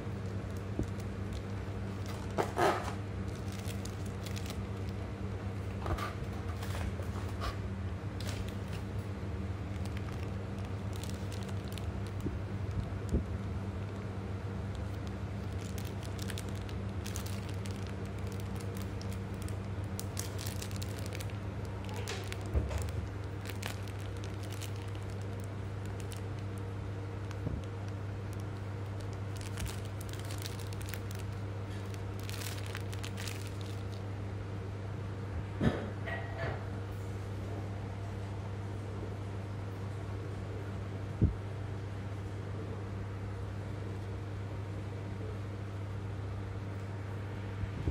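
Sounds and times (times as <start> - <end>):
plastic packaging crinkling: 0.0 - 5.1, 8.2 - 9.0, 9.6 - 34.1
steady low hum: 0.0 - 47.9.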